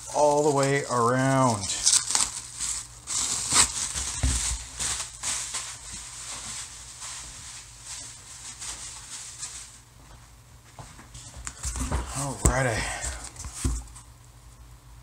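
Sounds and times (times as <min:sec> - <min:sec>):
bubble wrap crinkling: 0:00.0 - 0:09.9.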